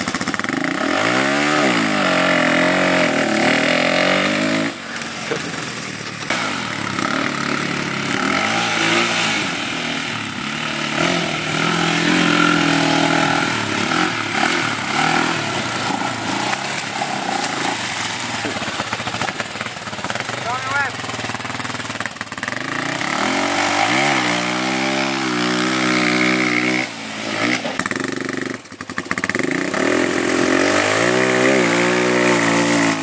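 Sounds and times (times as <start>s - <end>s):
quad engine revving: 0.0s - 33.0s.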